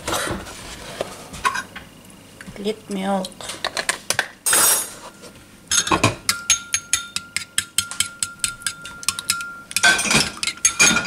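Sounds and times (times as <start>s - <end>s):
spoon clinking in ceramic bowl: 5.7s - 11.0s.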